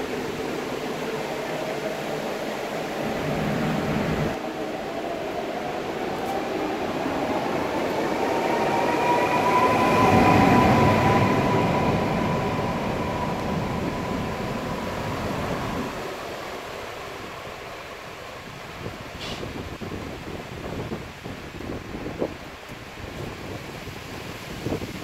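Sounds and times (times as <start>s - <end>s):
electric train motor whine: 0.0s - 16.3s
train wheels rumbling: 0.0s - 19.8s.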